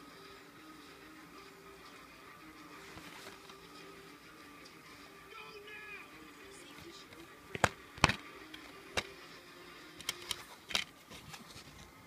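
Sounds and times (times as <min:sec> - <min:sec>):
plastic case clicks and snaps: 0:07.5 - 0:09.1, 0:10.0 - 0:10.9.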